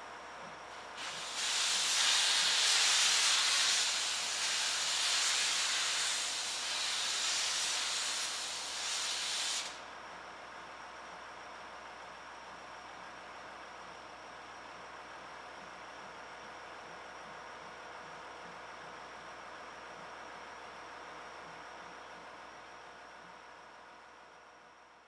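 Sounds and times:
steam locomotive venting steam: 0.7 - 9.8.

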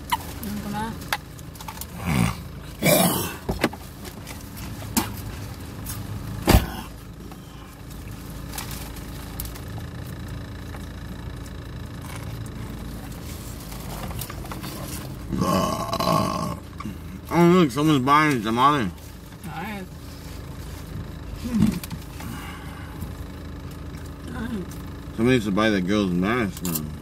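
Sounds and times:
low rumble inside a car: 0.0 - 27.0
rustling: 7.3 - 10.4.

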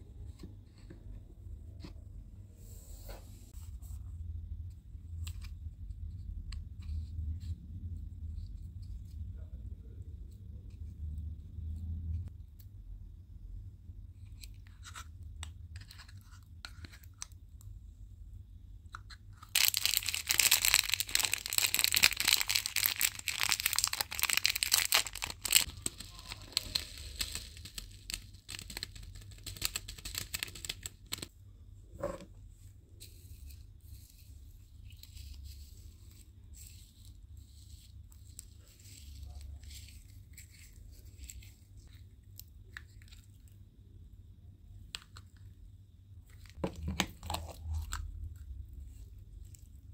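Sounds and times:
crinkly plastic bag handled: 19.5 - 31.3
foam beads crackling: 19.5 - 31.3.

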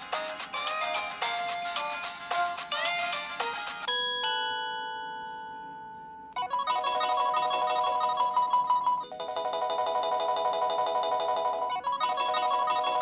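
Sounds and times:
melodic phone ringtones: 2.7 - 13.0
bell-like chord: 3.9 - 6.6.

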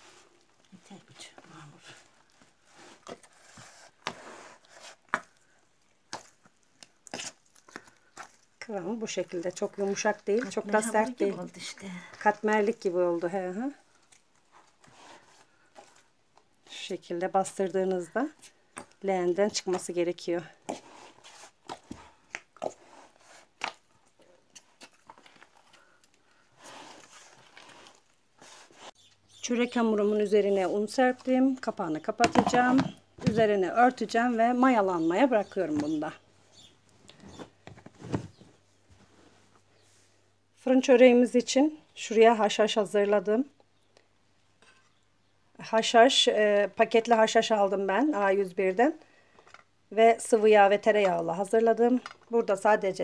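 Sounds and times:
dough squishing and rubbing: 0.0 - 23.9.

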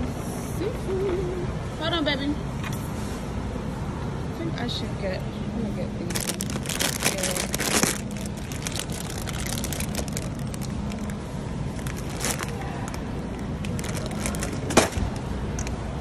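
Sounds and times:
steady low hum: 0.0 - 16.0
plastic bags crinkling: 6.1 - 15.0.

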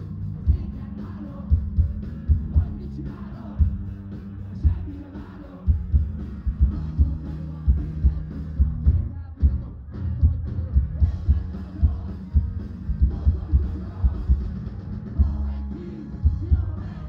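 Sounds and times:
live rock band: 0.0 - 17.0
steady drum beat: 0.0 - 17.0.

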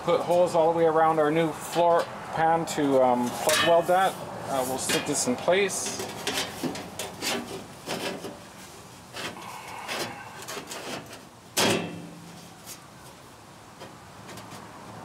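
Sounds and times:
light knocks and scrapes on metal: 3.2 - 8.5.

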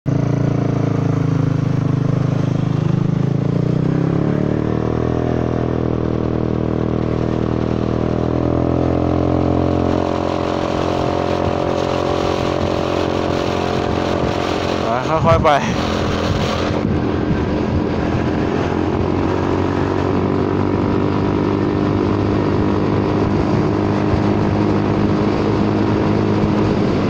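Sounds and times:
scooter engine and exhaust: 0.1 - 27.0
wind rush: 0.8 - 27.0
person talking: 14.8 - 16.0.

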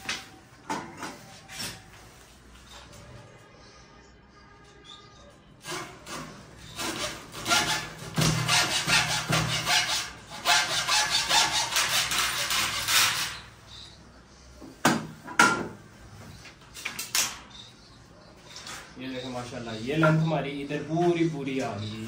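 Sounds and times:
hacksaw cutting wood: 5.7 - 13.4.

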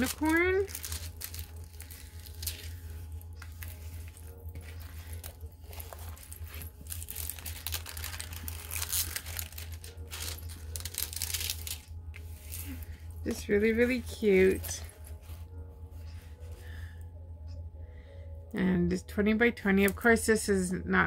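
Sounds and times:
plastic packaging crinkling: 0.0 - 15.6
steady low hum: 0.0 - 21.0.

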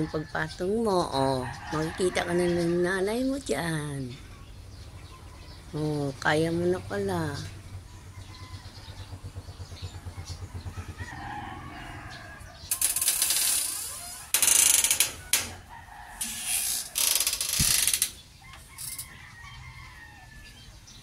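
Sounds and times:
sliding door rattling on track: 12.7 - 18.2.

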